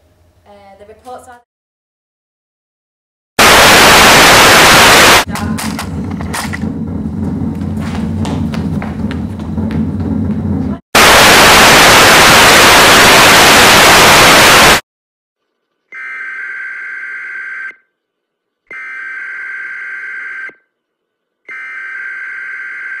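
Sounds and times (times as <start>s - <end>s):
television static hiss: 3.4s - 5.2s, 11.0s - 14.8s
emergency alert beeps: 21.5s - 23.0s.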